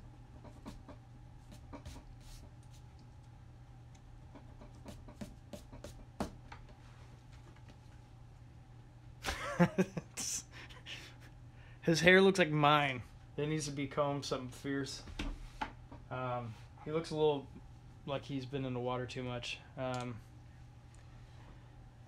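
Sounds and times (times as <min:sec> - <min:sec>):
low steady hum: 0:00.0 - 0:22.0
pencil scratching on paper: 0:01.4 - 0:02.5, 0:04.7 - 0:06.0.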